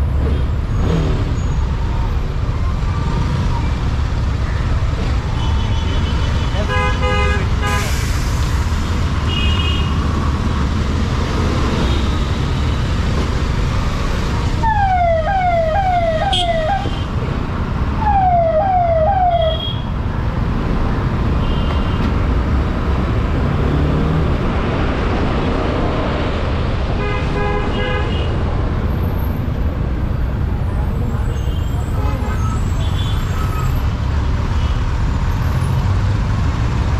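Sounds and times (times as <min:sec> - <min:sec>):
city traffic: 0:00.0 - 0:36.9
vehicle horns beeping: 0:05.4 - 0:08.0, 0:16.2 - 0:17.2.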